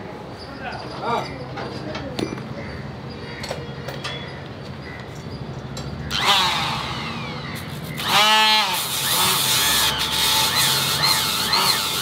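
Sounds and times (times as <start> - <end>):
power tool motor whining: 6.1 - 12.0.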